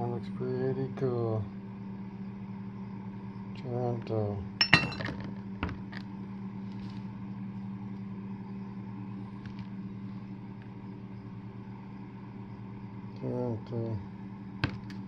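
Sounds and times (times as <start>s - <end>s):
low mechanical motor hum: 0.0s - 15.0s
glass bottles clicking: 4.6s - 5.2s.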